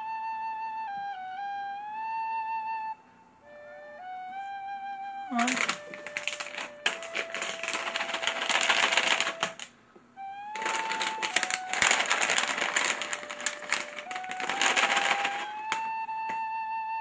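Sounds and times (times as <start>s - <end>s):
music with flute-like notes: 0.0s - 17.0s
plastic bags crinkling: 5.4s - 9.7s, 10.6s - 15.9s.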